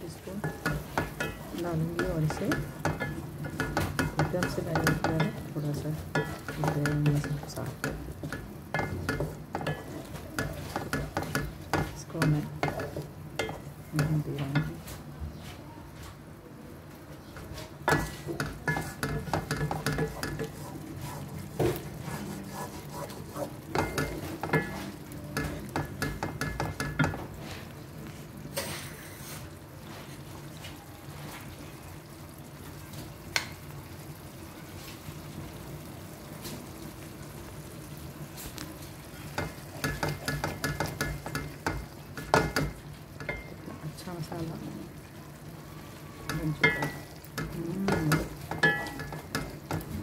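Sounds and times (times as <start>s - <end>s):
sizzling in oil: 0.0s - 15.1s, 16.9s - 50.0s
wooden spatula scraping pan: 0.4s - 13.7s, 17.4s - 27.7s.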